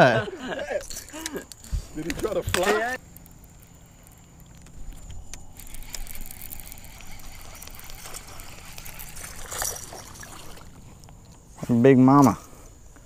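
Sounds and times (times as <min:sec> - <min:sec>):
fishing reel clicks and rattles: 0:00.8 - 0:10.6.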